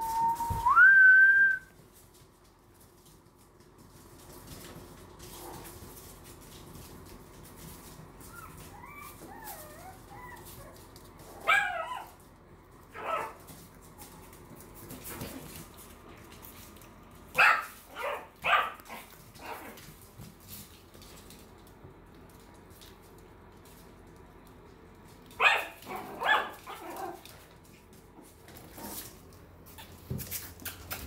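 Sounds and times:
puppies yapping: 8.2s - 10.8s
puppies whining: 8.2s - 12.2s.

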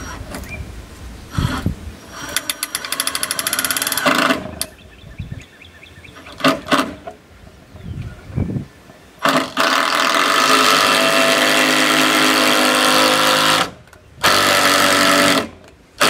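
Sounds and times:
power driver sinking screw: 9.2s - 15.5s.

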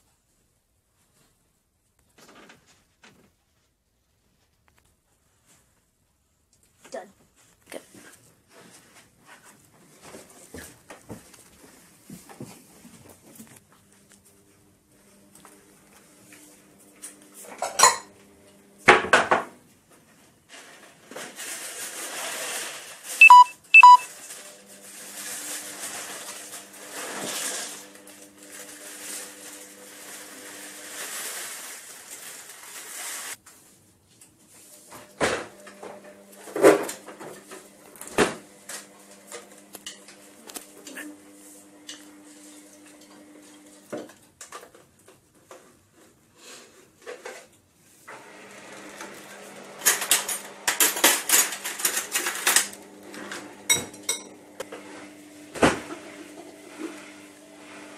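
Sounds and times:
bowl and kitchen items clinking: 17.6s - 18.1s, 53.7s - 54.4s
plastic bag rustling: 20.4s - 23.3s, 24.1s - 33.8s
short electronic beeps: 23.2s - 24.1s.

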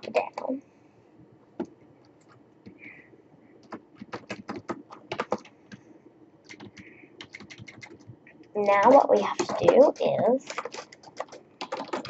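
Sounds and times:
keyboard typing clicks: 3.6s - 5.8s, 6.4s - 12.0s.

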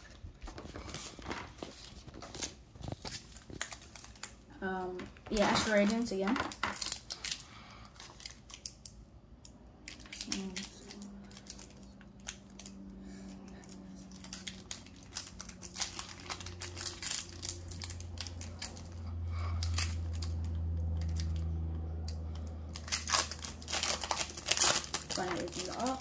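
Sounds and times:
foil wrapper crinkling and tearing: 0.0s - 9.1s, 9.8s - 26.0s
low steady hum: 0.0s - 26.0s.

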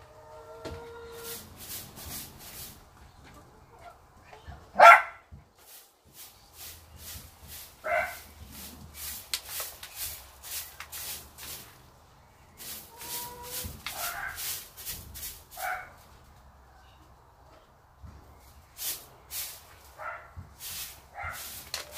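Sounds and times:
broom sweeping dirt floor: 0.5s - 3.2s, 5.4s - 16.4s, 18.0s - 21.9s
dog barking: 4.8s - 5.3s, 7.8s - 8.2s, 14.0s - 14.4s, 15.6s - 16.0s, 20.0s - 20.4s, 21.2s - 21.5s.

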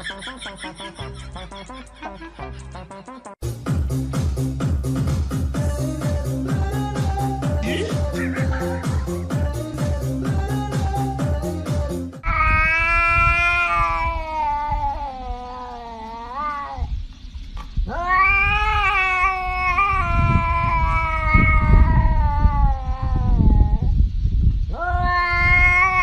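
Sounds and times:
cat yowling: 12.2s - 16.9s, 17.9s - 23.9s, 24.7s - 26.0s.

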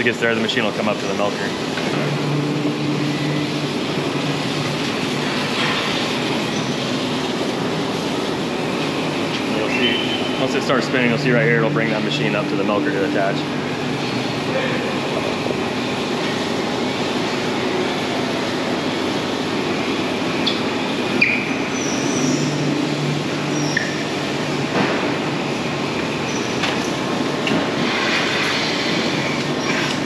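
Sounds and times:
machinery humming and rumbling: 0.0s - 30.0s
metallic squeaks and clicks: 20.4s - 22.5s, 23.6s - 24.0s.

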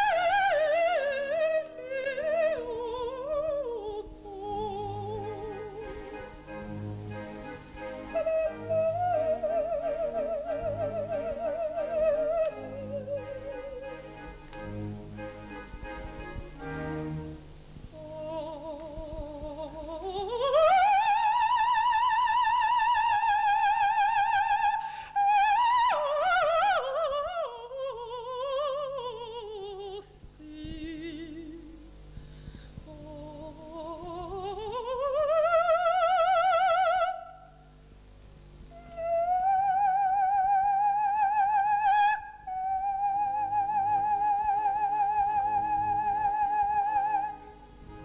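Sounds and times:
operatic soprano singing: 0.0s - 14.4s, 17.9s - 32.0s, 32.8s - 37.5s, 38.8s - 47.6s
soft orchestral accompaniment: 0.0s - 24.7s, 38.4s - 48.0s.

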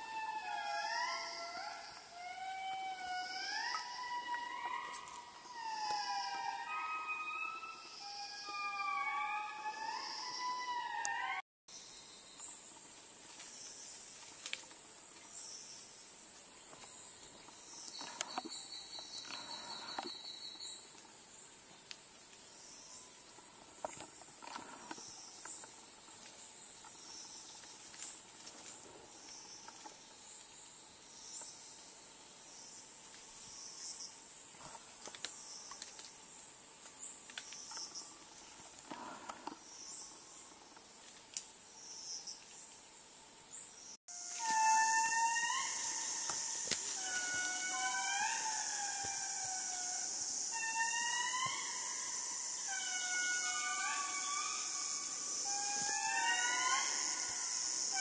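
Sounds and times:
insect buzz: 0.0s - 58.0s
insect chirp: 0.0s - 58.0s
fast insect trill: 44.1s - 58.0s.

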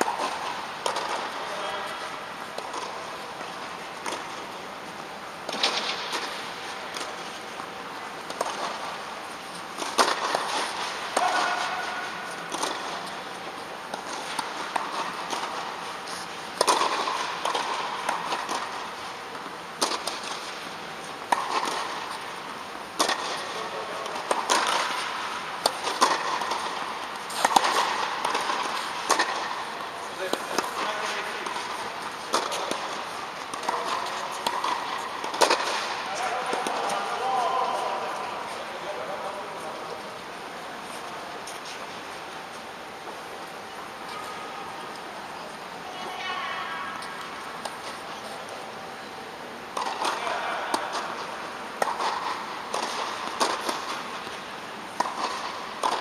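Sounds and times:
tennis rackets striking ball: 0.0s - 1.6s, 5.4s - 9.0s, 9.7s - 38.0s, 49.7s - 56.0s.

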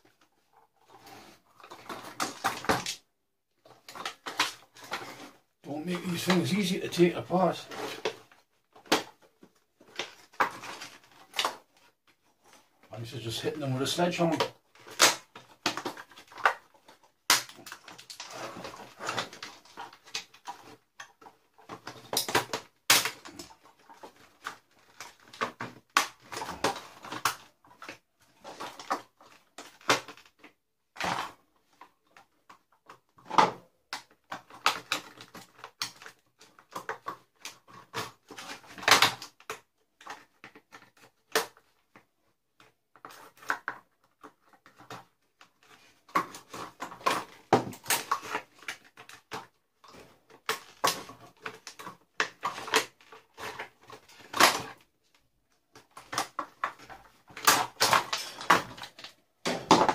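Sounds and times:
hard plastic knocking and rattling: 55.7s - 59.9s.

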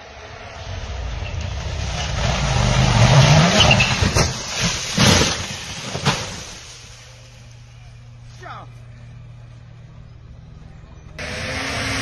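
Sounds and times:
rally car engine rising: 0.0s - 4.8s, 9.1s - 12.0s.

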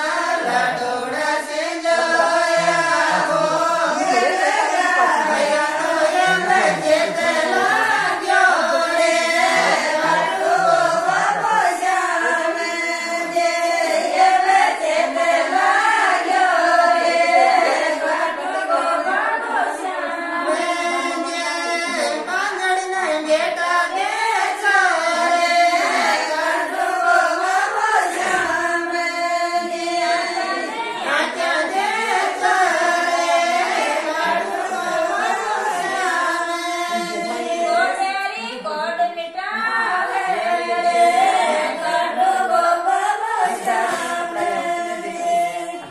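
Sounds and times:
women singing folk song: 0.0s - 45.9s.

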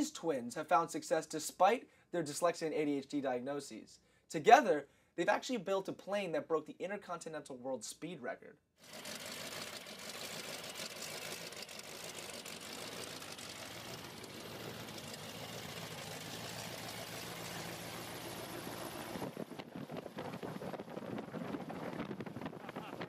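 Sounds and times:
plane piston engine running: 8.8s - 19.2s.

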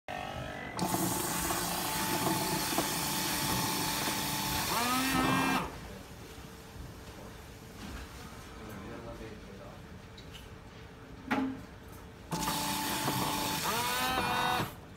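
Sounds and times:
pump hum: 0.1s - 5.8s.

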